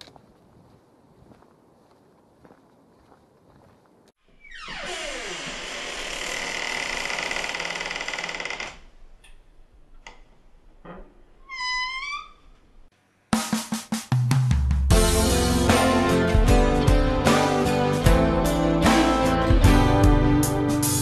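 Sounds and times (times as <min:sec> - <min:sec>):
drum kit: 0:13.3 - 0:21.0.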